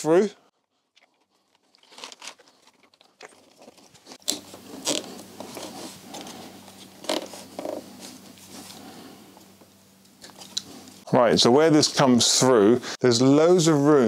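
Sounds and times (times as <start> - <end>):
cable scraping against plastic: 1.5 - 8.1.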